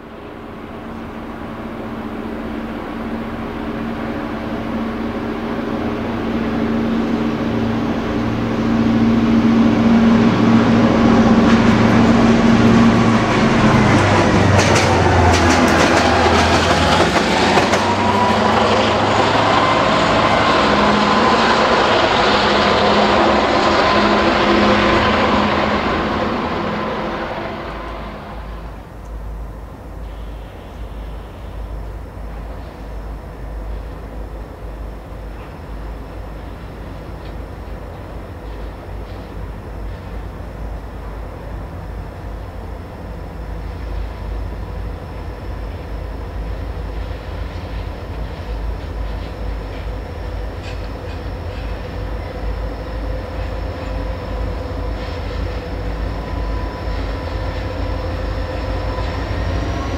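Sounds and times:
diesel locomotive engine drone: 0.0 - 59.9
wheels clicking over rail joints: 13.6 - 18.5, 47.5 - 52.3.

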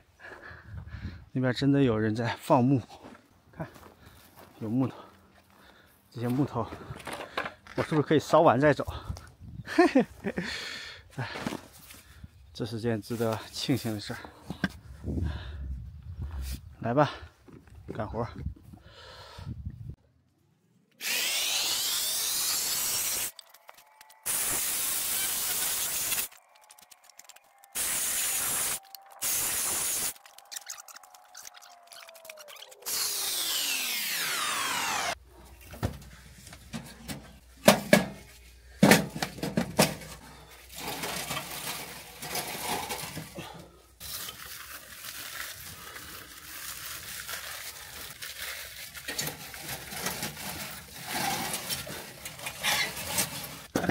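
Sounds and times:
electric chainsaw cutting logs: 21.0 - 26.4, 27.7 - 30.2, 32.7 - 35.2.

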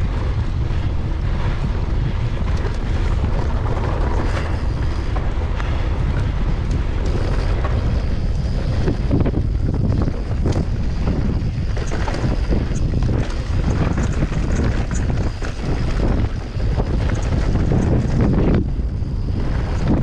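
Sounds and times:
mountain bike rattling: 0.0 - 20.0
wind buffeting microphone: 0.0 - 20.0
bike clicks and knocks: 0.1 - 18.8.

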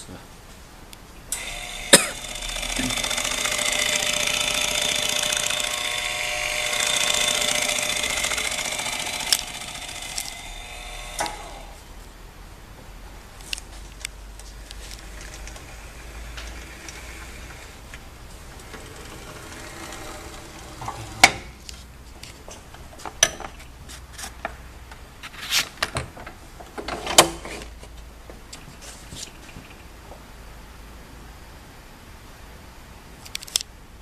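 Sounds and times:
low steady hum: 0.0 - 23.0.

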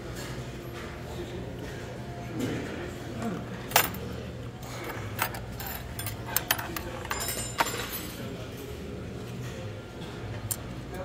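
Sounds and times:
utensils clinking against bowls: 3.7 - 8.5.

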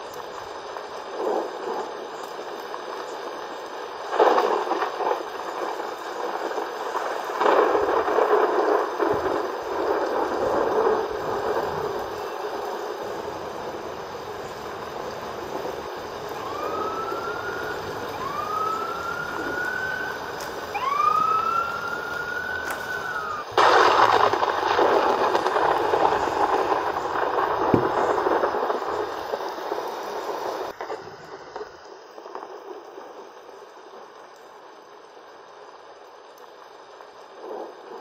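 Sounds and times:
thunder crack and rumble: 0.0 - 34.9, 37.1 - 38.0
rising wailing tones: 16.2 - 23.6.

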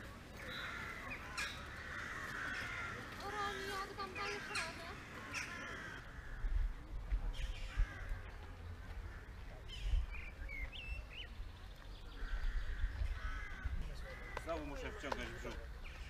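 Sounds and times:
wind buffeting microphone: 9.7 - 14.9.

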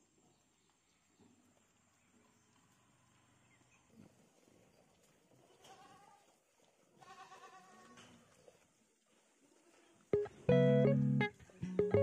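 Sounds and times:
goats bleating: 5.4 - 6.3, 7.0 - 8.2.

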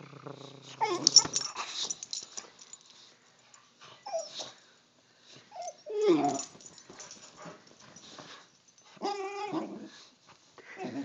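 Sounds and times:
dog whining grunt: 0.0 - 2.0, 5.5 - 6.5, 9.0 - 10.0, 10.6 - 11.0
bedding rustling: 5.4 - 9.1.

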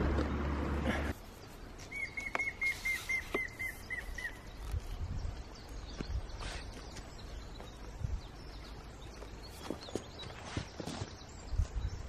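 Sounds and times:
woodpecker whistled call: 1.8 - 4.7.

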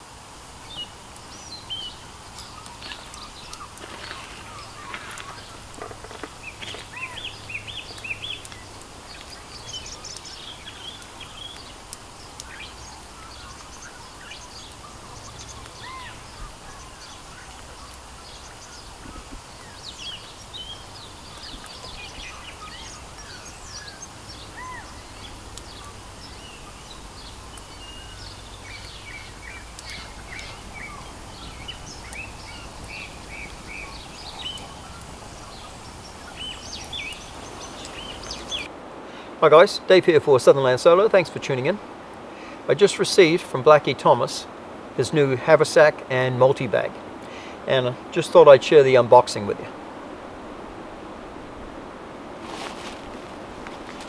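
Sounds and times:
low outdoor noise: 0.0 - 54.0
birds chirping and whistling: 0.6 - 38.7.

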